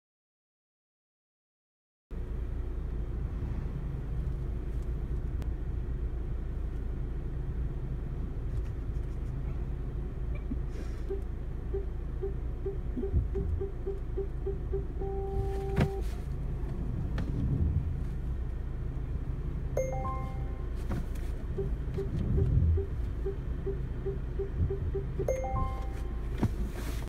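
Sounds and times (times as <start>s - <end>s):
car engine low rumble: 2.1s - 27.0s
parking sensor beeps: 10.4s - 16.1s, 19.8s - 20.8s, 21.5s - 26.3s.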